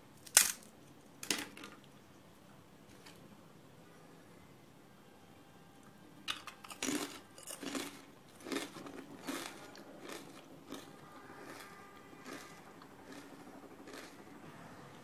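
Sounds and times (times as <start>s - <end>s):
potato chips crunching: 0.2s - 0.7s, 6.3s - 14.3s.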